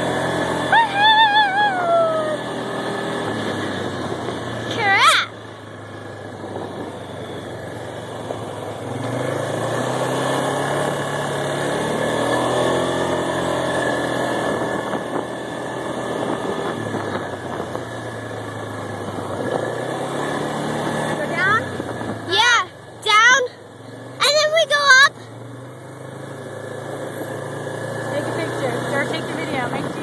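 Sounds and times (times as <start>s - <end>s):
atv engine running: 0.0s - 30.0s.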